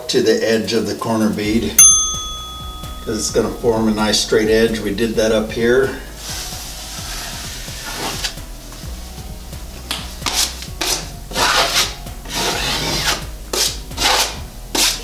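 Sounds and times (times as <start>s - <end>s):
taping knife scraping: 6.4s - 8.4s, 10.2s - 15.0s.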